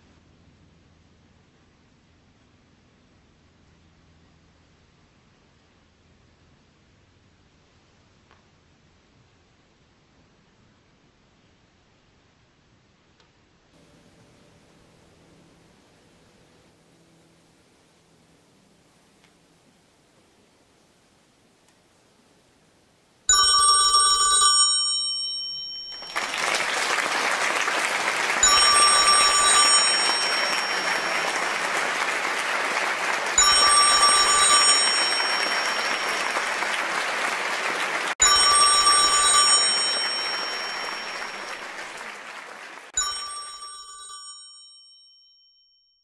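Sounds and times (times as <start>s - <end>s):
telephone bell ringing: 23.3s - 37.6s, 38.2s - 42.0s, 43.0s - 45.9s
audience applauding: 25.9s - 43.0s.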